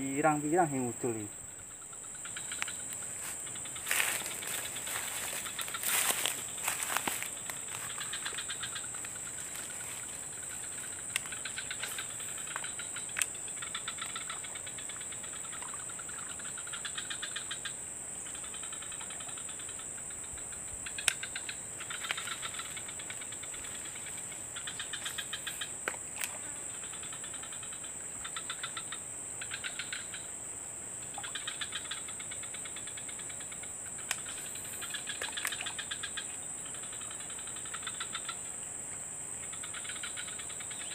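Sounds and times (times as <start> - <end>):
rapid pulsing chirps: 0.0 - 17.5
insects droning: 0.0 - 40.9.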